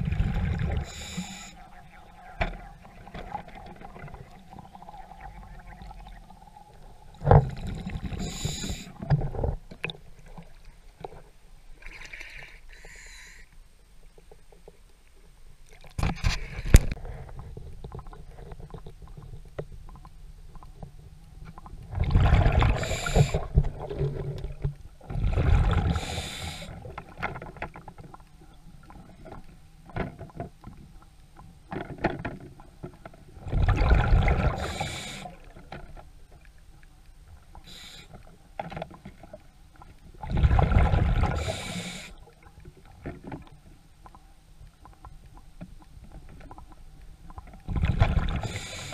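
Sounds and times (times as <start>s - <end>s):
water sloshing and rushing: 0.0s - 12.5s, 21.7s - 30.8s, 31.7s - 37.7s, 38.5s - 44.2s.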